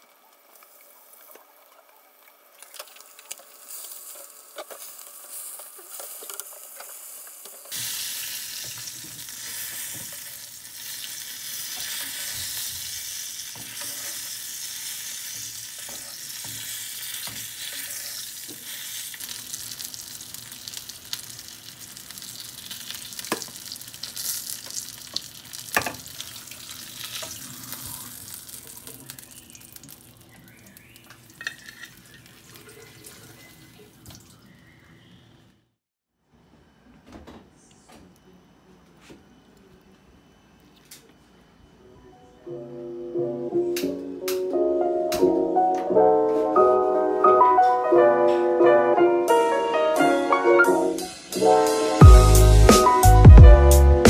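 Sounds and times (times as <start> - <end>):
fish sizzling in hot oil: 2.5 - 33.6
metal utensils clicking on pan: 31.4 - 32.0.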